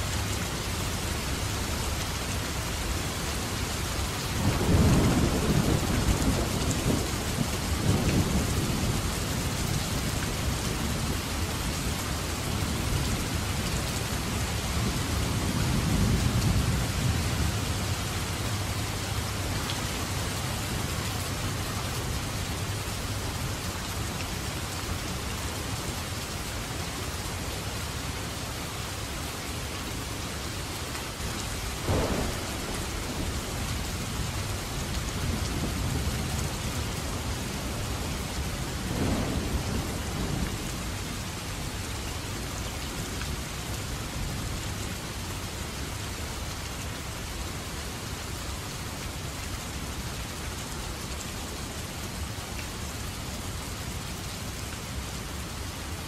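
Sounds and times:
heavy rain falling: 0.0 - 56.0
thunder rumbling: 4.4 - 9.3, 31.8 - 41.3
sharp thunderclaps: 31.8 - 34.4, 38.8 - 40.6.

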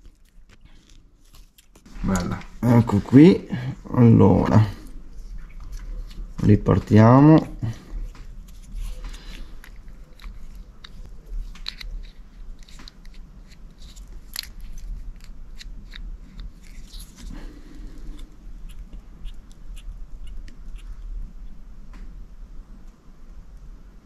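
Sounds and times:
low steady hum: 0.0 - 24.0
small clicks and snips: 8.1 - 17.4.

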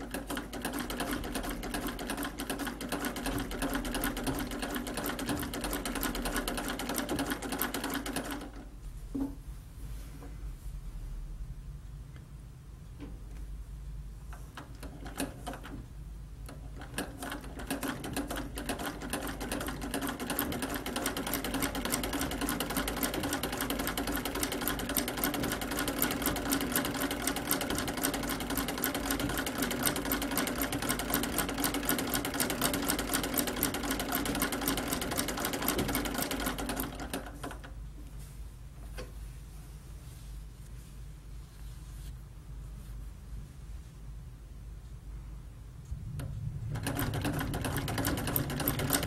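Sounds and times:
sewing machine stitching: 0.0 - 8.7, 14.5 - 15.8, 16.5 - 37.7, 46.2 - 49.0.

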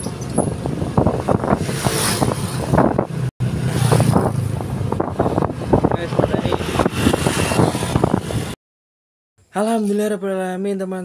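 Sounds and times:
wind buffeting microphone: 0.0 - 8.6.

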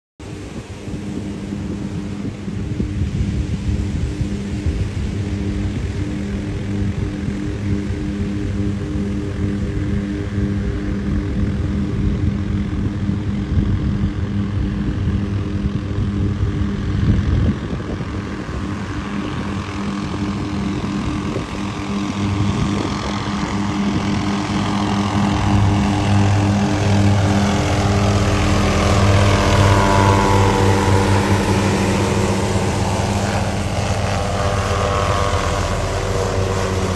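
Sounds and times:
helicopter rotor and turbine whine: 0.2 - 36.9.

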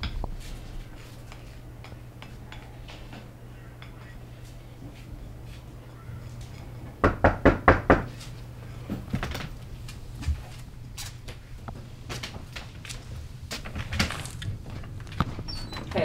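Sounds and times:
loud knocks on a door: 7.0 - 8.1.

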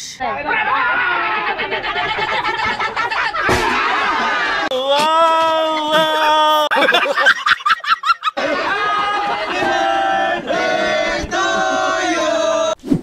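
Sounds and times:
man laughing loudly: 1.5 - 9.7.

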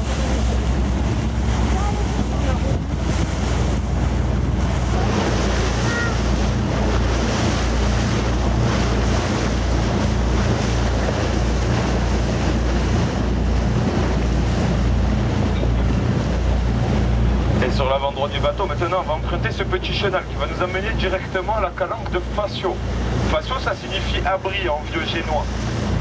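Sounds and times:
wind buffeting microphone: 0.0 - 17.7
boat engine humming: 0.0 - 26.0
water rushing: 0.0 - 26.0.

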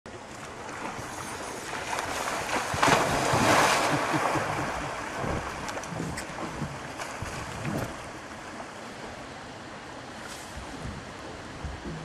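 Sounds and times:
rushing water: 0.1 - 12.0
bear splashing in river: 0.2 - 9.3.

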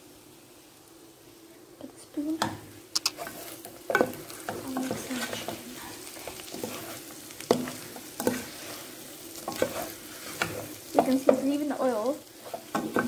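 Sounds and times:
chicken sizzling in a pan: 0.0 - 13.0
spoon scraping and knocking pan: 2.4 - 11.6, 12.4 - 13.0.

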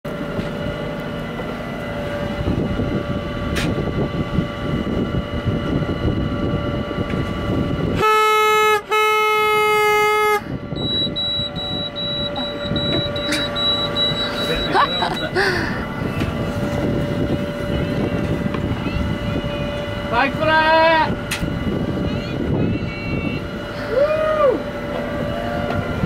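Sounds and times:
low rumble: 0.1 - 8.0, 10.4 - 26.0
boat horn blasts: 7.8 - 15.4, 16.9 - 26.0.

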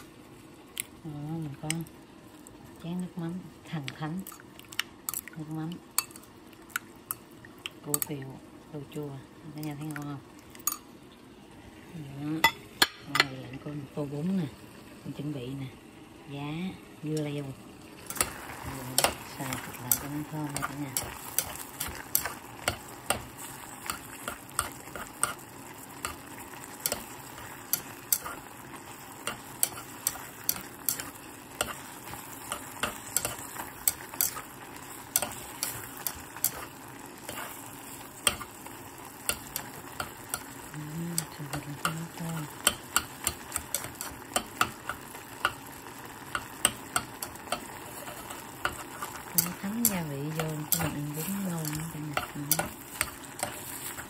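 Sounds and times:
meat and onion sizzling: 0.0 - 54.0
chopsticks clicking against pot: 26.0 - 28.4, 29.2 - 34.4, 35.1 - 36.7, 39.2 - 45.7, 46.3 - 53.7.

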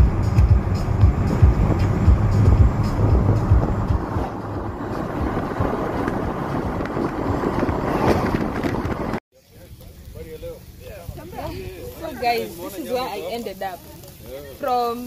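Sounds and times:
road noise inside car: 0.0 - 9.2
wind buffeting microphone: 0.0 - 12.8.

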